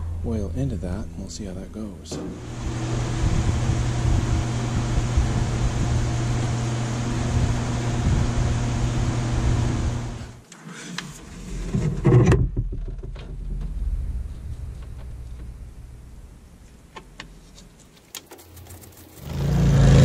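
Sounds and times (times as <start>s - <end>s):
loud clunk: 2.1s - 2.5s
small electric motor humming: 2.4s - 10.4s.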